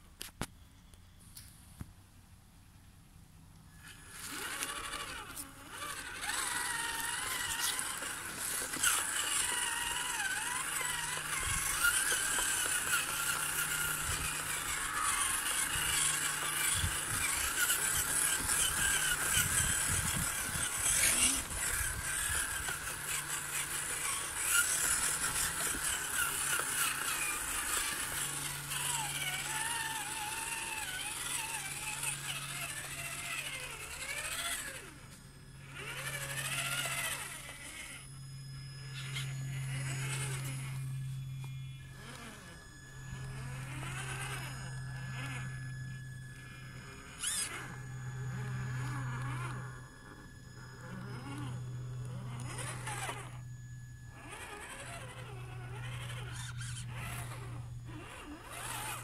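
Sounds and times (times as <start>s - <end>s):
electric motor and gearbox whining: 3.4s - 59.0s.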